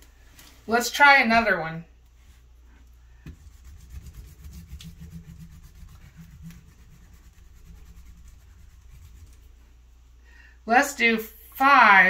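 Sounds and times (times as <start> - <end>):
whiteboard being wiped: 2.2 - 9.7.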